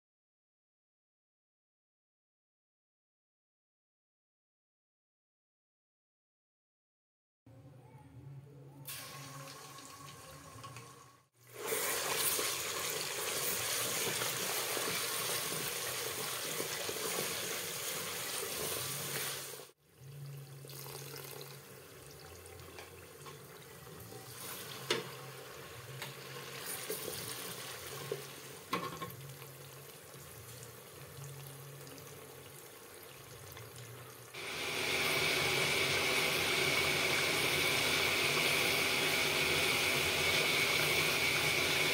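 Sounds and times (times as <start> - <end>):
tomato paste sizzling in oil: 11.4 - 19.8, 23.4 - 41.9.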